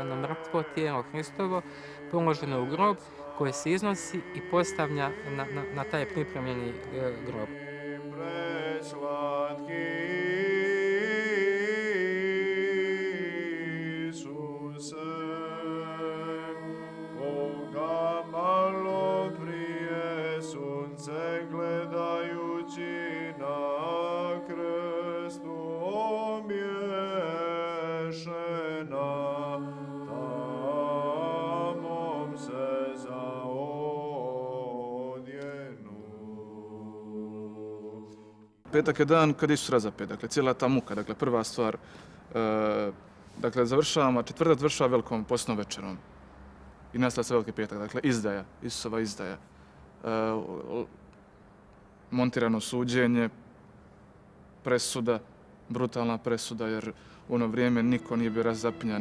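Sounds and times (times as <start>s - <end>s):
unaccompanied church chant: 0.0s - 46.1s, 54.6s - 59.0s
low held drone note: 57.3s - 59.0s.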